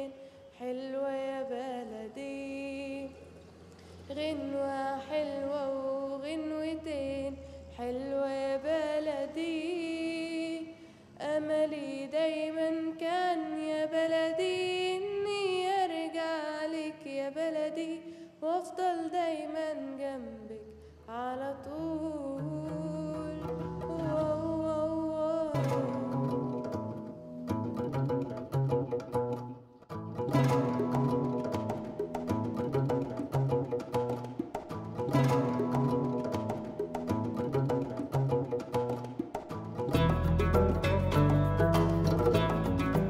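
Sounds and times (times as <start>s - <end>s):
soft instrumental accompaniment: 22.4s - 43.0s.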